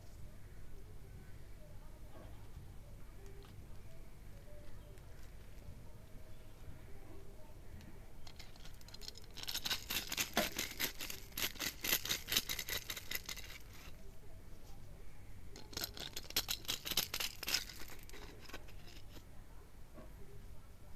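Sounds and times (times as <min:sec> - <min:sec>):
corn kernels crackling off cob: 0:07.8 - 0:14.0, 0:15.5 - 0:19.3.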